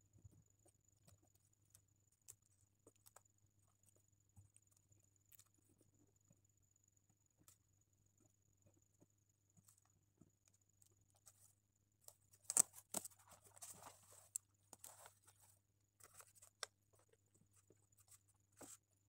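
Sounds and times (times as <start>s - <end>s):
paper rustling: 12.1s - 18.8s.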